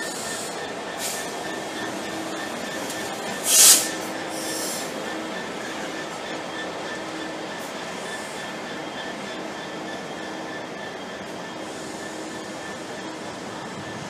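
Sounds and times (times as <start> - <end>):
diesel locomotive engine rumbling: 0.0 - 14.0
air hiss bursts: 3.4 - 4.8.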